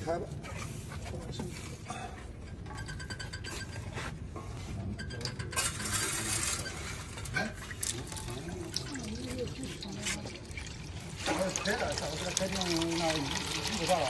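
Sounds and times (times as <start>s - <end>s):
oil pouring into metal bowl: 7.7s - 14.0s.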